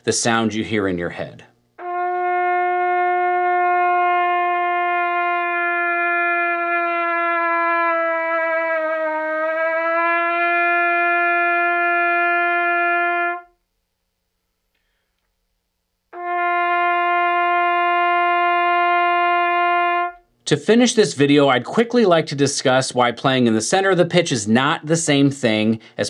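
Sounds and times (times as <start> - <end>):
trumpet holding long note: 1.8 - 13.6, 16.1 - 20.3.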